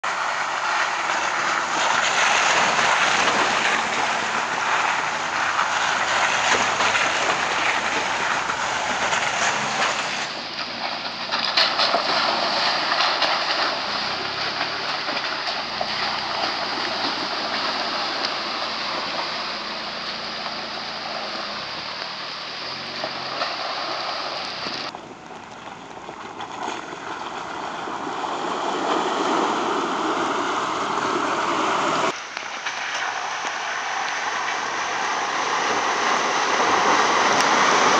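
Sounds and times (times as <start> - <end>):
tyres splashing through water: 0.0 - 37.9
vehicle engine running: 0.0 - 37.9.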